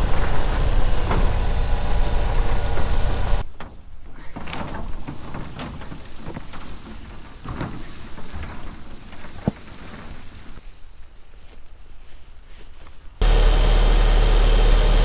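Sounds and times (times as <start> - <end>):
metal roof panels rattling: 0.0 - 10.6
rustling: 0.0 - 13.3.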